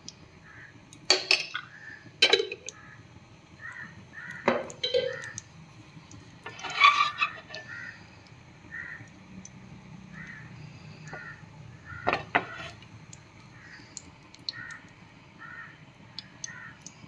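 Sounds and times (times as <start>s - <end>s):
crows cawing: 0.4s - 0.8s, 2.7s - 3.0s, 3.6s - 5.4s, 7.6s - 8.0s, 8.7s - 9.2s, 10.1s - 12.6s, 13.5s - 15.8s, 16.4s - 16.9s.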